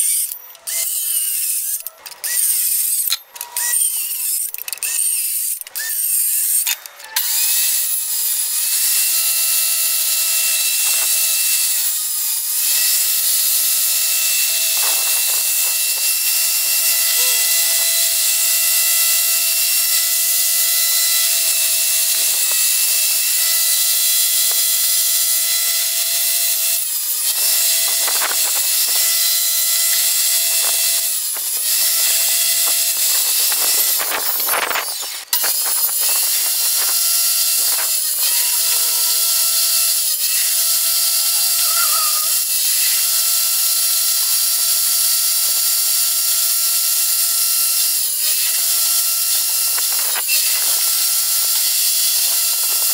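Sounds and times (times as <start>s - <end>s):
power saw cutting plywood: 0.0s - 52.9s.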